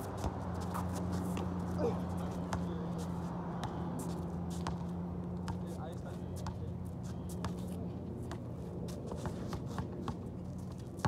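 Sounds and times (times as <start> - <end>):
shoe scuffs on hard court: 0.0 - 4.9.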